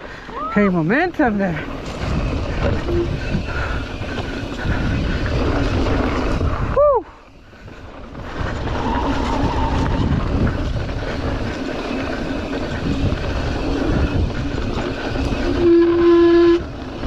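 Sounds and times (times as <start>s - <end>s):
bike tyres rumbling over dirt: 0.0s - 17.0s
bike brakes squealing: 2.2s - 5.5s, 8.6s - 10.2s, 14.8s - 16.7s.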